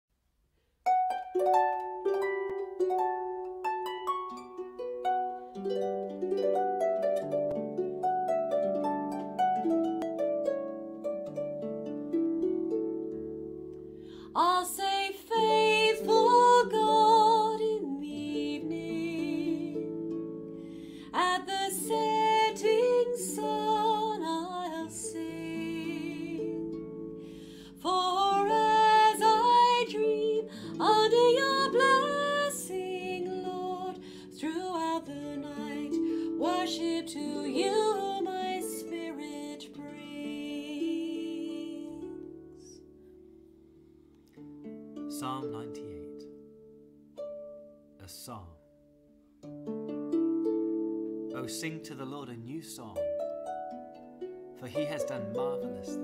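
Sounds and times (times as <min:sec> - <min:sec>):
harp melody: 0:00.8 - 0:56.0
woman singing a hymn: 0:14.2 - 0:19.9, 0:21.0 - 0:42.3.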